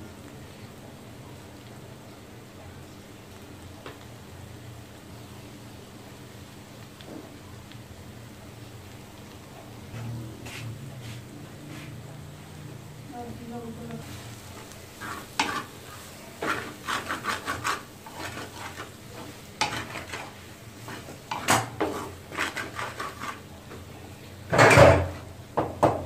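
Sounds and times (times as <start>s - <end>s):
filling frying in a pan: 0.0s - 26.0s
spatula scraping a frying pan: 14.0s - 23.8s.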